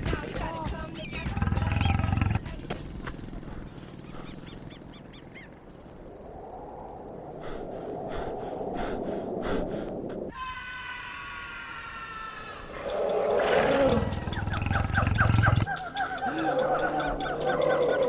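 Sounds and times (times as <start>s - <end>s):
lion growling: 1.2s - 2.5s, 12.8s - 15.7s.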